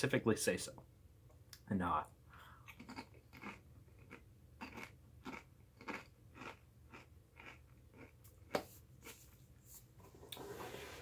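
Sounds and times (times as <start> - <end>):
chewing crunchy chips: 2.6 - 8.5.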